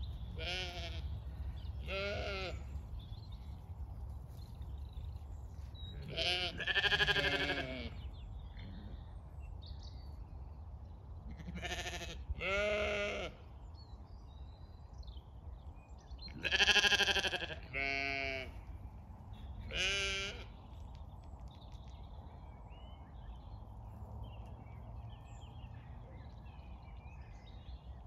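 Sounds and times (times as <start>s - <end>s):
sheep bleating: 0.4s - 1.1s, 1.8s - 2.7s, 6.0s - 8.0s, 11.3s - 13.4s, 16.4s - 18.6s, 19.6s - 20.5s.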